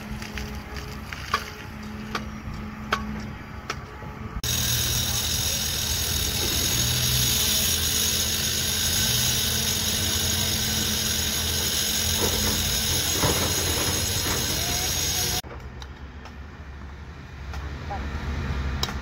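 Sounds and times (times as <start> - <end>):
electric power tool hissing: 4.4 - 15.4.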